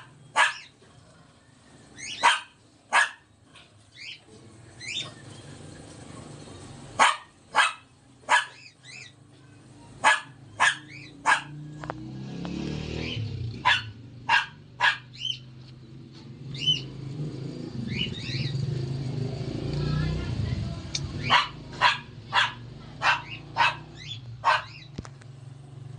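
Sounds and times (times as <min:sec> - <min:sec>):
dog barking: 0:00.0 - 0:00.8, 0:02.1 - 0:03.3, 0:07.0 - 0:08.7, 0:10.0 - 0:11.7, 0:13.6 - 0:15.4, 0:21.2 - 0:24.9.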